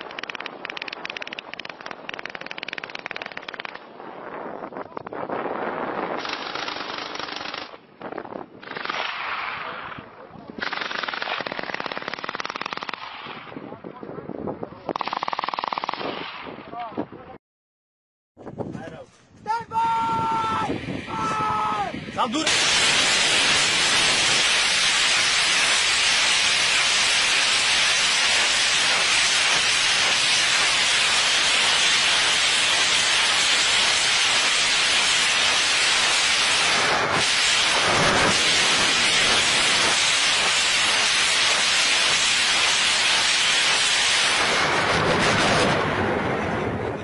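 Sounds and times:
rocket motors rushing hiss: 0:20.4 - 0:45.8.

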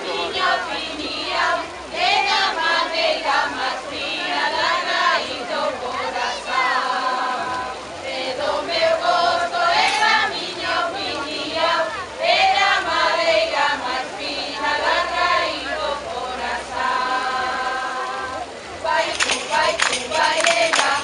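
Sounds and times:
women singing in chorus: 0:00.0 - 0:21.0.

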